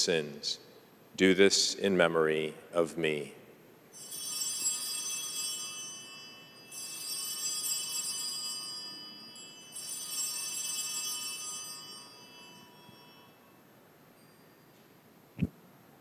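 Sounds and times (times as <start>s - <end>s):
altar bells ringing: 4.0s - 14.8s.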